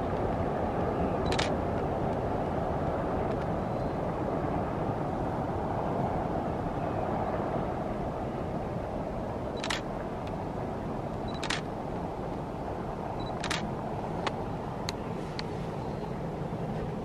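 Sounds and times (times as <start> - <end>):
steady rushing background noise: 0.0 - 17.0
camera shutter firing: 11.4 - 11.6.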